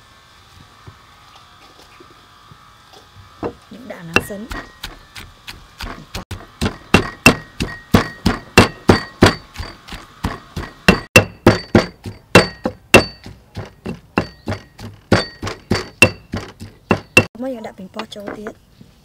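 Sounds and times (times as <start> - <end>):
stone pestle pounding in mortar: 3.5 - 17.3.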